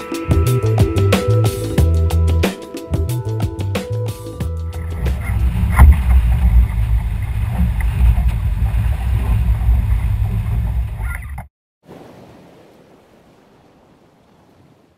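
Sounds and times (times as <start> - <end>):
wind rumbling on microphone: 4.8 - 11.5
faint waves washing: 4.8 - 14.9
water washing against boat: 4.8 - 14.9.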